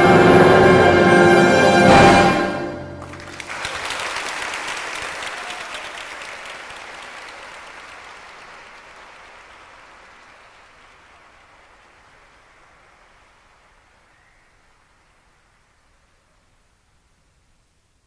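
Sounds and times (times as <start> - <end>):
audience applauding: 2.8 - 15.6.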